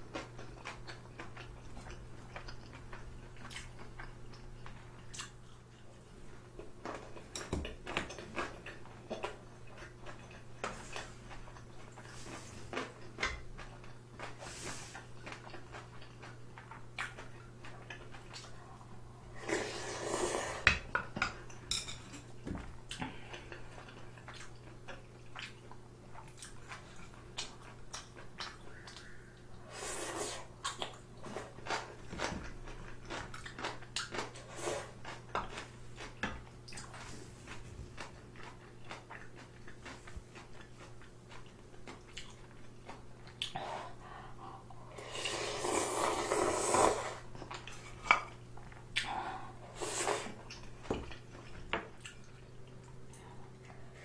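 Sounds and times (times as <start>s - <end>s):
faint steady hum: 0.0s - 54.0s
wet chewing: 6.6s - 19.0s, 30.5s - 44.6s
noodles slurped: 19.3s - 20.6s, 44.9s - 47.7s.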